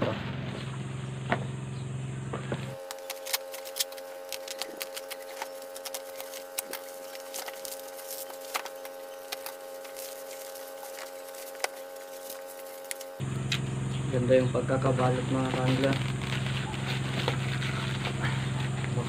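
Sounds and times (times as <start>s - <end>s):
faint steady hum: 0.5s - 19.0s
knife slitting parcel: 2.7s - 13.2s
plastic packaging crinkling: 2.7s - 13.2s, 15.4s - 18.9s.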